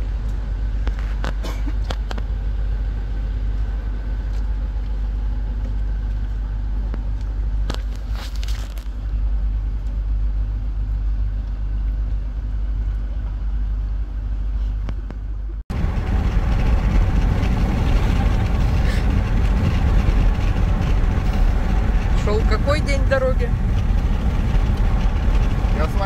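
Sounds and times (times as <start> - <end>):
car cabin rumble: 0.0 - 26.0
engine and road noise: 0.0 - 26.0.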